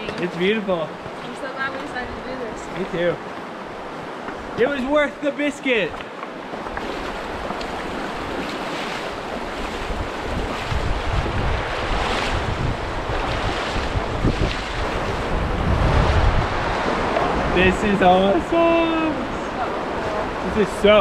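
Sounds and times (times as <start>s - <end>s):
river water rushing over rocks: 6.0s - 21.0s
wind buffeting microphone: 6.5s - 21.0s.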